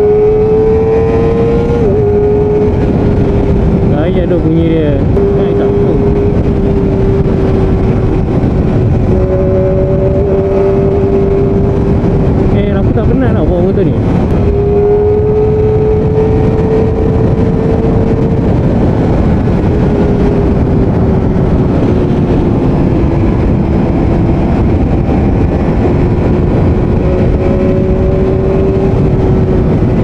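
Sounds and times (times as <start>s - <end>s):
motorcycle engine high-pitched drone: 0.0s - 30.0s
wind and road noise: 0.0s - 30.0s.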